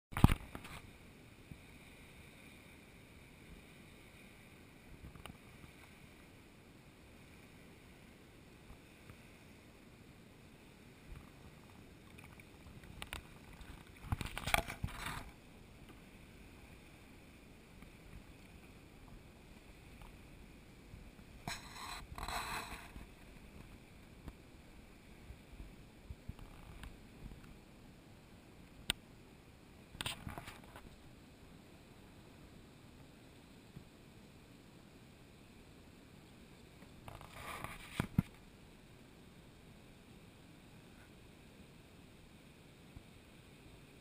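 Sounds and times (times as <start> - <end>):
faint steady hiss: 0.1 - 44.0
water lapping and splashing: 11.0 - 27.4.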